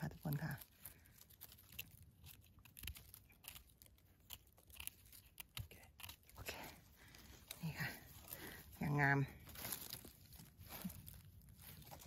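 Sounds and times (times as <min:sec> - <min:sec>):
knife cutting mushroom stem: 0:01.3 - 0:08.5.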